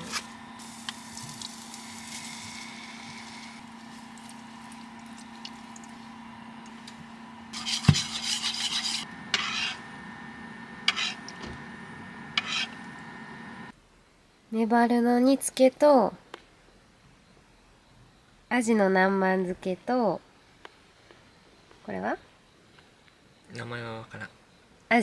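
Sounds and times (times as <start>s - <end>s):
steady hum: 0.0s - 13.8s
utensils scraping a frying pan: 7.5s - 9.8s, 10.8s - 11.3s, 12.3s - 12.9s.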